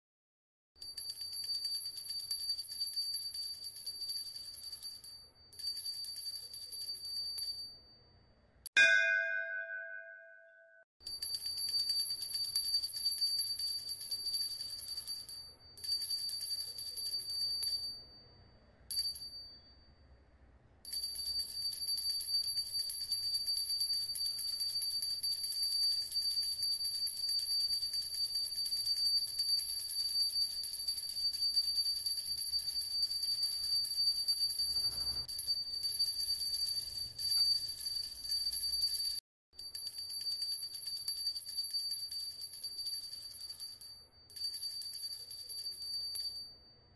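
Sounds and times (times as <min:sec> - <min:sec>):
high bell-like ringing tone: 0:08.8 - 0:10.8, 0:32.7 - 0:39.2.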